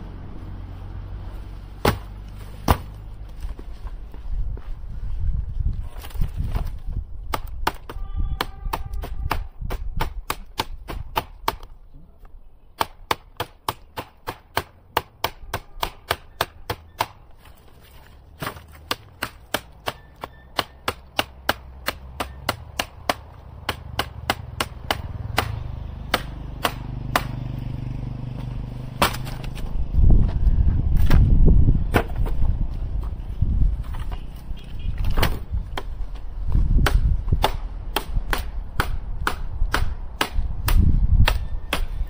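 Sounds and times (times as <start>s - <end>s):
knife chopping firewood: 1.8s - 3.0s, 6.0s - 11.8s, 12.8s - 27.4s, 28.4s - 29.7s, 31.9s - 32.4s, 35.0s - 36.2s, 36.8s - 42.0s.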